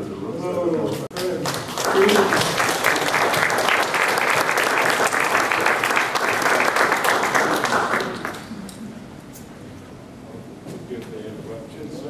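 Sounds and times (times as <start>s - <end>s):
audience applauding: 1.1s - 8.6s.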